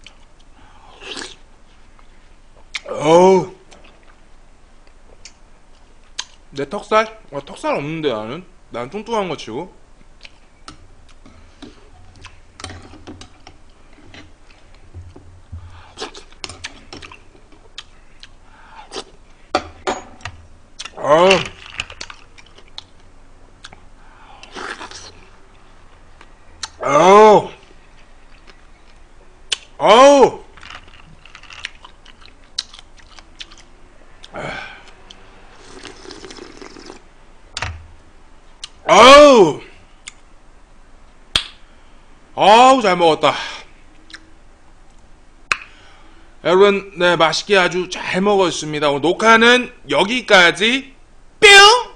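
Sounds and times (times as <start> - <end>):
man chewing and lip smacking: 0.0 - 0.5, 3.7 - 6.4, 10.0 - 10.4, 11.0 - 12.4, 15.7 - 19.4, 21.6 - 25.2, 26.2 - 26.8, 30.9 - 37.0, 38.6 - 38.8, 40.0 - 40.3, 44.0 - 44.3
person slurping: 0.8 - 1.4, 15.7 - 17.2, 24.4 - 25.3, 34.4 - 37.0.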